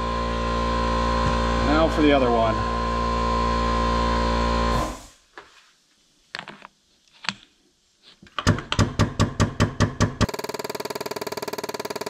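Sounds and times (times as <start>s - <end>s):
pump humming: 0.0s - 5.1s.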